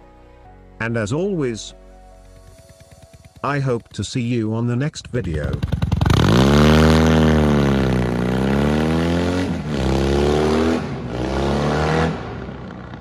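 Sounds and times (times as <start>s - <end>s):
motorcycle engine revving: 2.4s - 4.0s, 5.0s - 13.0s.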